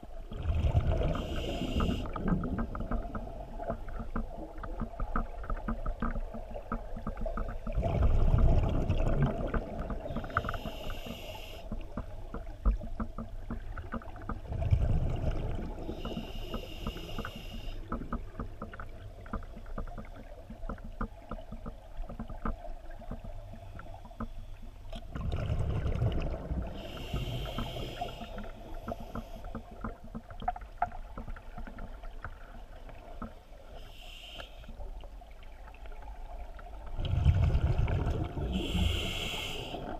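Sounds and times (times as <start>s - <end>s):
low underwater background: 0.0s - 39.9s
diver breathing through regulator: 1.1s - 2.2s, 10.1s - 11.8s, 15.8s - 18.0s, 26.7s - 29.7s, 38.4s - 39.9s.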